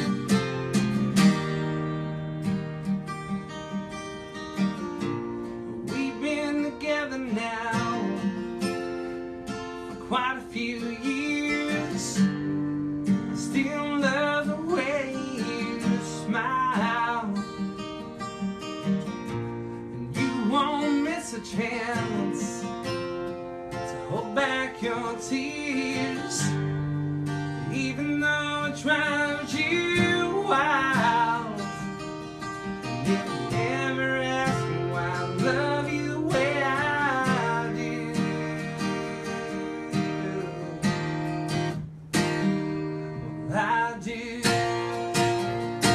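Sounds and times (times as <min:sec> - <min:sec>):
acoustic guitar strumming: 0:00.0 - 0:45.9
person singing: 0:05.6 - 0:08.4, 0:10.0 - 0:17.6, 0:20.0 - 0:22.8, 0:23.8 - 0:32.1, 0:32.7 - 0:41.3, 0:43.0 - 0:45.9.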